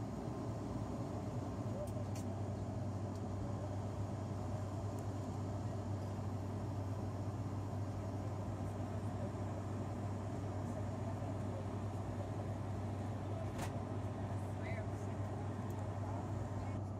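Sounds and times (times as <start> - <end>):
propeller drone: 0.0 - 13.2.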